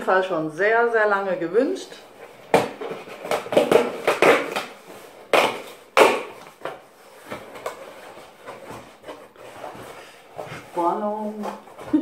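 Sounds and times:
cardboard knocks and rustles: 0:02.4 - 0:10.7.

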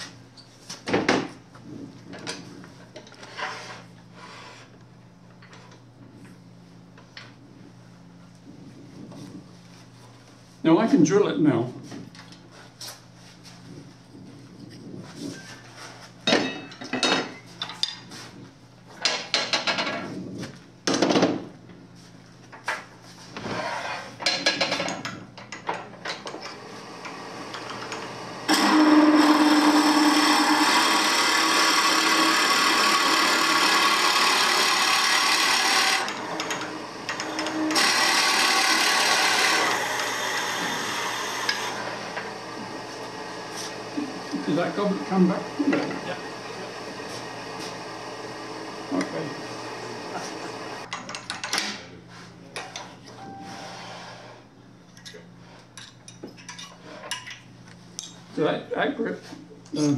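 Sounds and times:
drill bit boring into spinning wood: 0:28.5 - 0:42.4.

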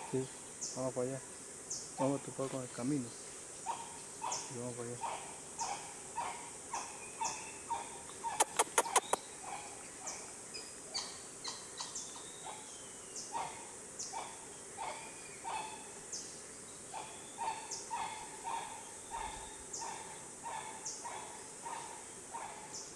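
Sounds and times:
high insect hiss: 0:00.0 - 0:22.9
short animal calls: 0:03.7 - 0:10.2
sharp clicks: 0:08.4 - 0:09.2.

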